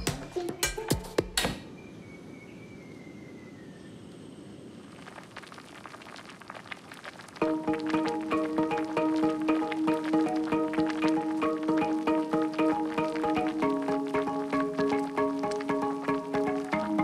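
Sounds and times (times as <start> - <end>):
pot simmering with bubbling crackle: 4.4 - 17.0.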